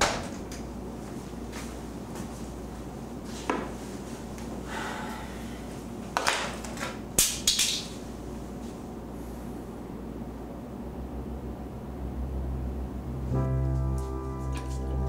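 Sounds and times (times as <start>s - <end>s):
low steady hum: 7.9s - 15.0s.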